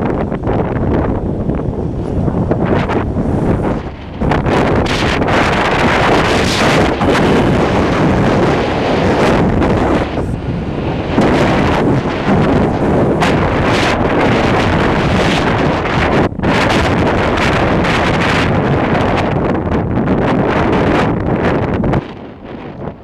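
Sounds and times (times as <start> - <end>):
vehicle road noise: 0.0 - 23.0
wind buffeting microphone: 0.0 - 23.0.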